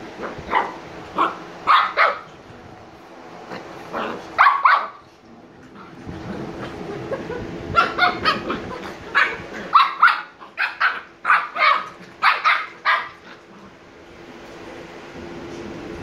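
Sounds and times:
puppy barking: 0.2s - 2.3s, 4.0s - 5.0s, 7.7s - 13.4s.

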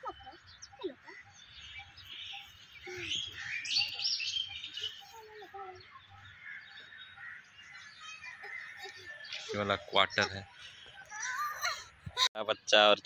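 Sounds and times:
birds chirping and calling: 0.0s - 13.0s.

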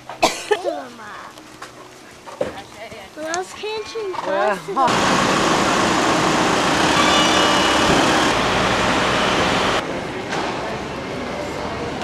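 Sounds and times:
road traffic rush: 4.9s - 12.0s.

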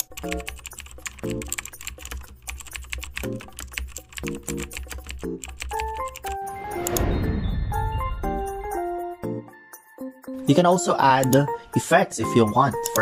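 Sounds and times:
keyboard typing: 0.0s - 7.0s, 12.7s - 13.0s
background music: 0.0s - 13.0s.

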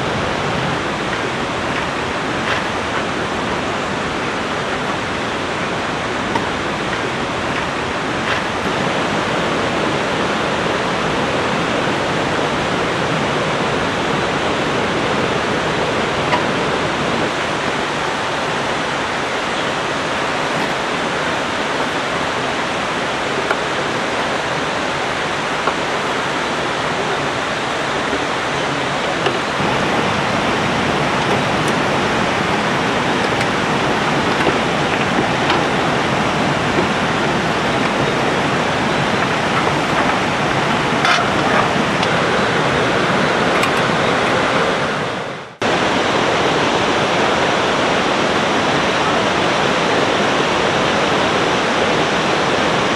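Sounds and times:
river flowing: 0.0s - 52.9s.

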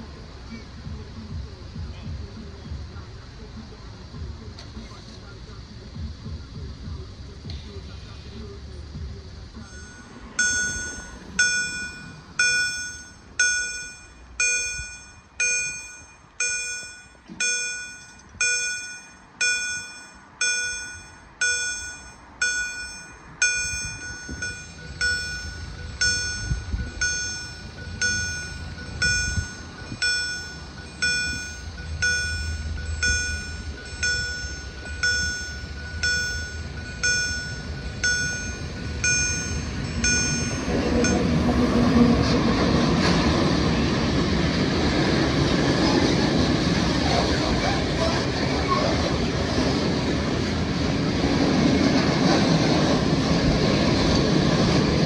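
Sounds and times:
low train rumble: 0.0s - 55.0s
level crossing bell ringing: 9.6s - 41.8s.

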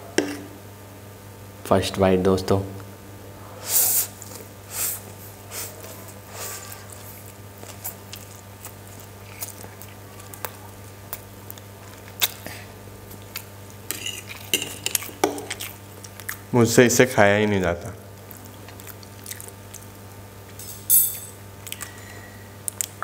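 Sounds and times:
noodles slurped and chewed: 4.2s - 12.6s
fork scraping on plate: 13.9s - 15.0s.

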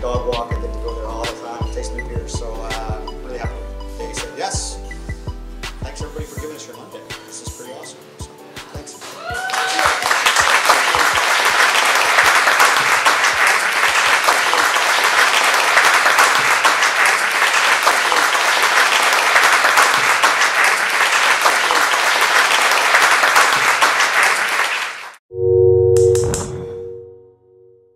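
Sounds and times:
audience applauding: 9.0s - 25.2s.

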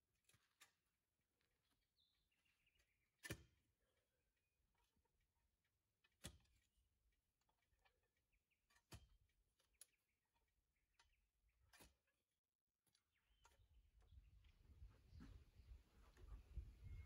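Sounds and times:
post-hole digger thuds in soil: 3.2s - 3.6s.

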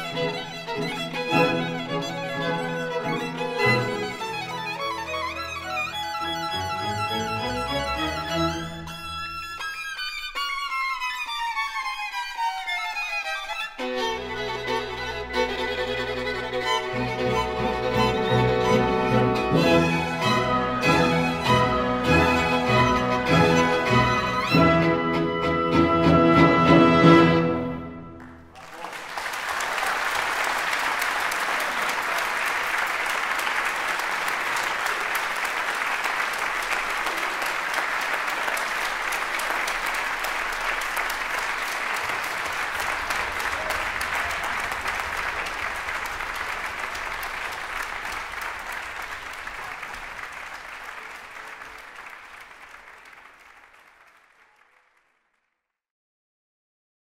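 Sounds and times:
audience applause: 0.0s - 8.8s, 14.0s - 24.9s, 28.2s - 55.4s
violin and orchestra chord: 13.8s - 28.2s.

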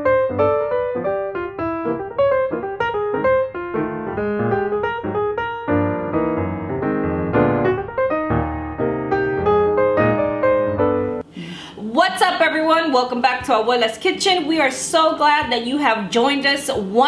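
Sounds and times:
piano theme music: 0.0s - 11.3s.

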